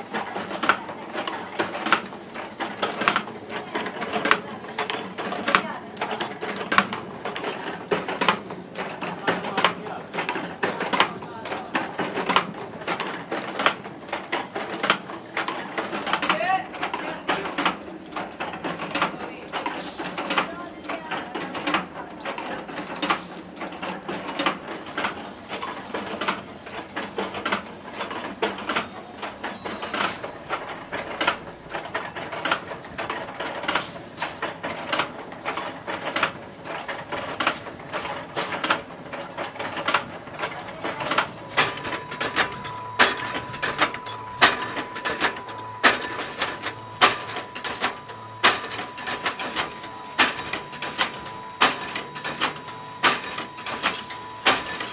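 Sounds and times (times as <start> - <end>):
machinery metallic clacking: 21.2 - 54.9.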